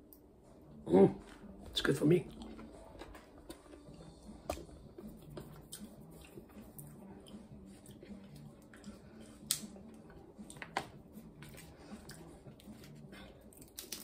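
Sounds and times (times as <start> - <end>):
chestnut shells cracking: 13.6 - 14.0.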